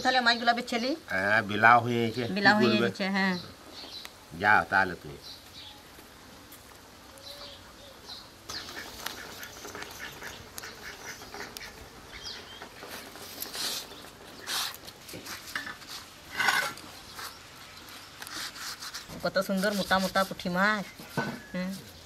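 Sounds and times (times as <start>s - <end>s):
ducks quacking: 8.5s - 12.6s.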